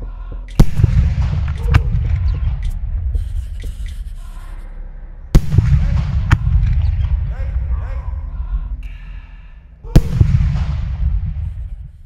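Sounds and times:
low rumble: 0.0s - 12.0s
fireworks bangs: 0.6s - 3.7s, 5.4s - 7.8s, 9.9s - 12.0s.

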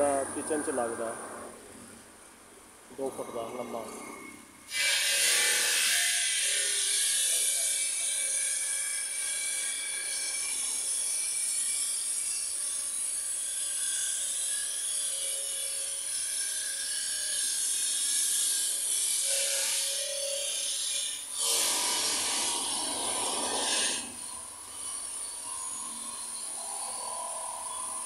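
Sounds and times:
stone-cutting saw whining: 0.0s - 1.6s, 3.0s - 28.0s.

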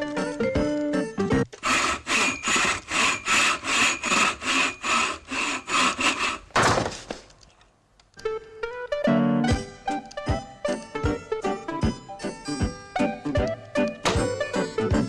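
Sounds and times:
music: 0.0s - 1.5s, 8.2s - 15.0s
hand saw cutting wood: 1.6s - 7.2s.

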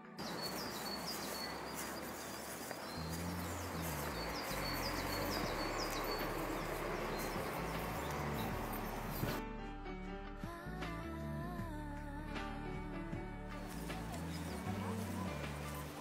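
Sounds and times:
small birds chirping: 0.0s - 9.4s, 13.6s - 16.0s
steady outdoor hiss: 0.0s - 9.4s, 13.6s - 16.0s.

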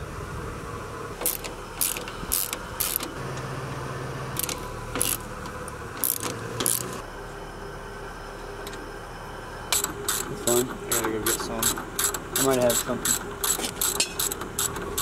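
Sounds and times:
socket ratchet clicking: 1.2s - 3.1s, 4.4s - 5.2s, 6.0s - 6.9s, 11.6s - 15.0s.

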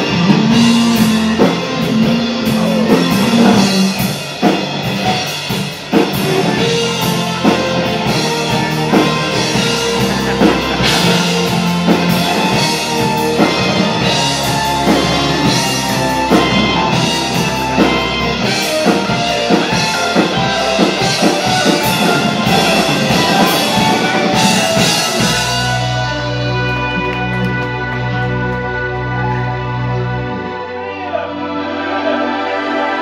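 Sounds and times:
drums beating steadily: 0.0s - 30.3s
rock band playing: 0.0s - 33.0s.

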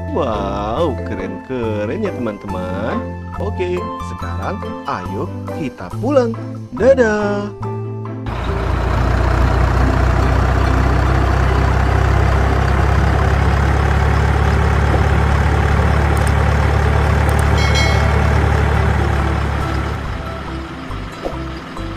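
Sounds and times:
heavy truck engine running: 8.3s - 21.9s
brief high tone: 17.5s - 20.5s.

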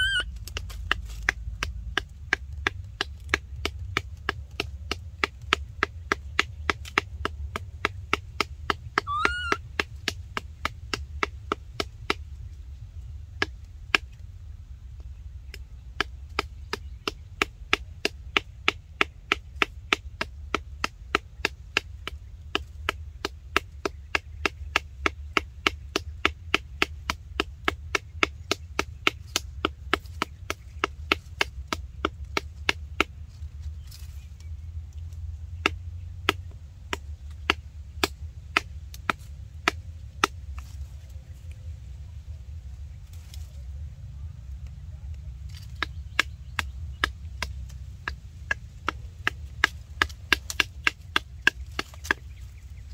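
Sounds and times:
baby monkey squeak: 0.0s - 0.3s, 9.0s - 9.7s
chopping by hand: 0.4s - 12.2s, 15.5s - 34.2s, 35.6s - 40.8s, 45.4s - 52.4s
low rumble: 30.9s - 52.9s.

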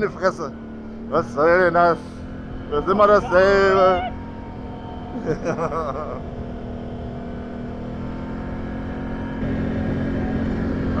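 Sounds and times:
quad bike engine running: 0.0s - 11.0s
person speaking: 2.7s - 4.2s.

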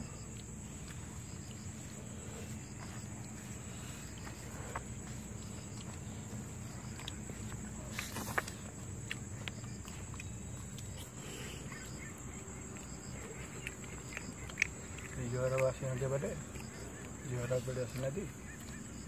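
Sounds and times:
rustle: 0.0s - 15.5s
high insect drone: 0.0s - 19.0s
fingers squishing food: 4.1s - 17.2s.

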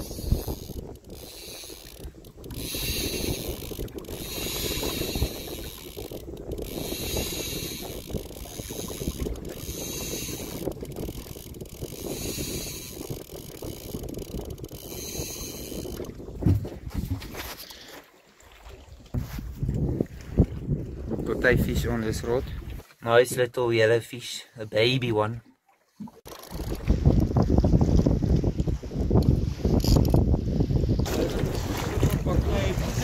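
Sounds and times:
fishing reel ratcheting: 0.0s - 16.1s, 26.3s - 26.8s, 29.7s - 30.2s
low rumble of wind and water: 0.0s - 33.0s.

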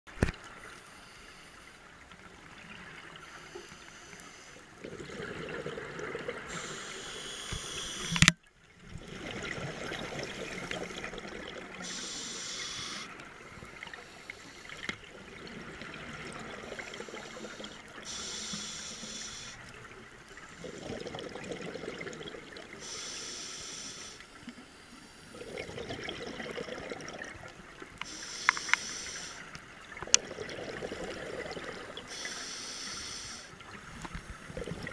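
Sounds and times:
regulator inhale hiss: 0.7s - 1.8s, 3.2s - 4.8s, 6.4s - 8.3s, 11.8s - 15.0s, 16.6s - 19.7s, 22.7s - 25.4s, 28.0s - 29.6s, 31.8s - 33.6s
exhaust bubbles gurgling: 4.8s - 6.7s, 8.8s - 11.9s, 20.5s - 22.8s, 25.3s - 27.8s, 29.8s - 32.1s, 34.4s - 34.9s.

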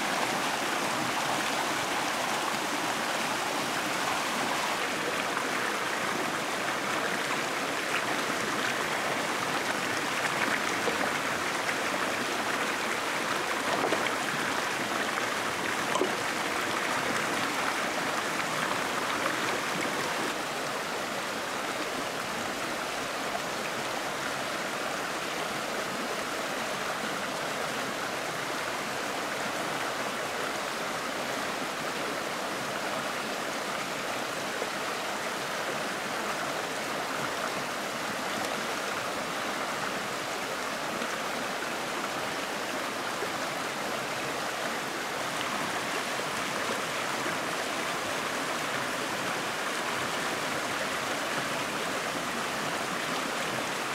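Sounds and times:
stream rushing over cascade: 0.0s - 53.9s.

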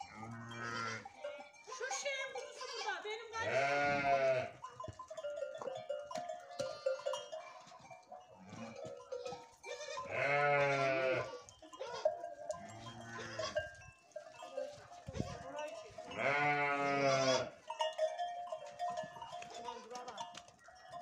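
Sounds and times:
sheep bleating: 0.0s - 1.4s, 2.4s - 4.8s, 8.4s - 13.7s, 15.2s - 17.6s.

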